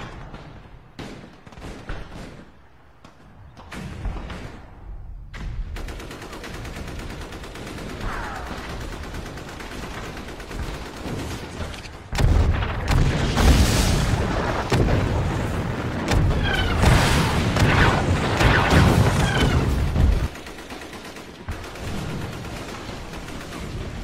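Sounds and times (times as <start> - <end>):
heavy explosions booming: 12.1 - 20.3.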